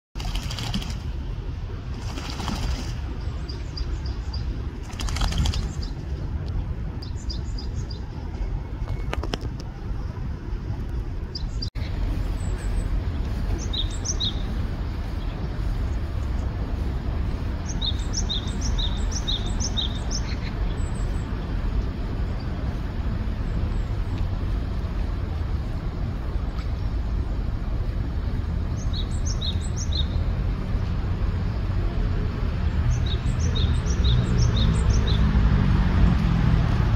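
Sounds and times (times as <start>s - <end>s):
water splashing: 0.2s - 1.2s, 1.9s - 3.3s
steady low rumble: 0.2s - 36.9s.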